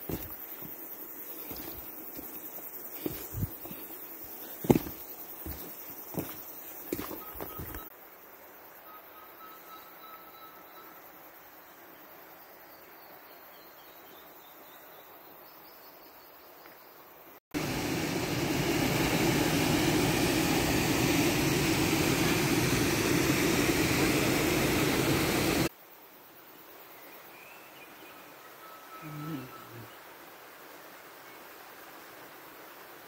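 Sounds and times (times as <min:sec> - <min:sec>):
faint forest background: 0:00.0 - 0:33.0
waterfall roaring: 0:17.6 - 0:25.7.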